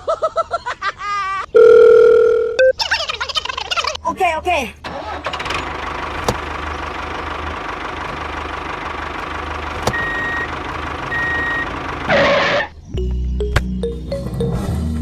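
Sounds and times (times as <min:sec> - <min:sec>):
short high beeps: 0:01.6 - 0:02.7
tractor engine running: 0:04.8 - 0:12.7.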